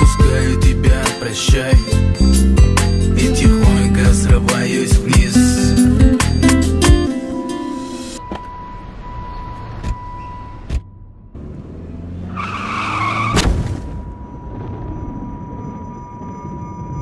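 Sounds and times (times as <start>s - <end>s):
high-pitched ringing tone: 5.6s - 10.7s, 14.0s - 17.0s
loud car crash: 8.6s - 15.6s
tyres screeching: 11.4s - 13.5s.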